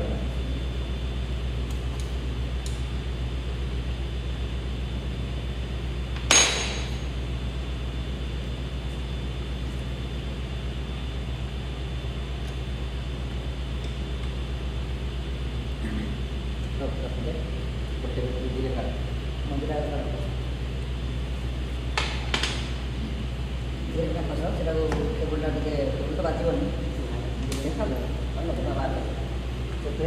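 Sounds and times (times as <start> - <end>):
steady low hum: 0.0 - 30.0
sharp metallic clink: 6.3 - 7.0.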